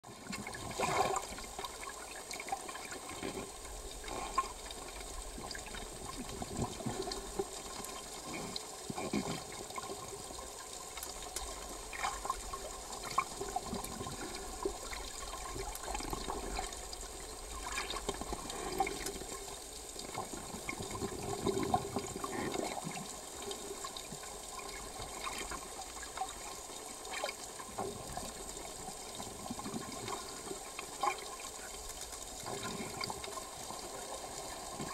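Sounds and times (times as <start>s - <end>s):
underwater water rush and gurgle: 0.0s - 34.9s
bumps and bubbling: 2.9s - 10.2s, 20.0s - 23.1s.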